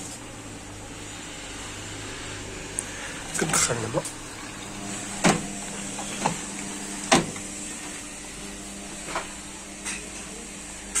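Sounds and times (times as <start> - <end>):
washing machine humming: 0.0 - 11.0
washing machine knocks and clunks: 5.1 - 6.5, 7.1 - 7.4.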